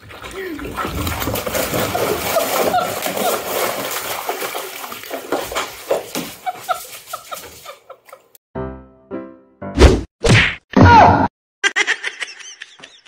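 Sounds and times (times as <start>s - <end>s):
cat splashing in bathtub water: 0.0s - 7.9s.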